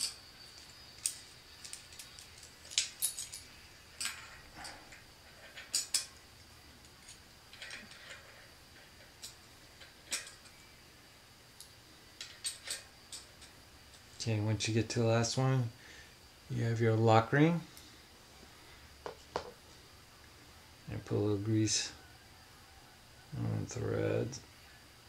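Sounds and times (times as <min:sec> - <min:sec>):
metal sprockets clinking: 0:00.0 - 0:06.2.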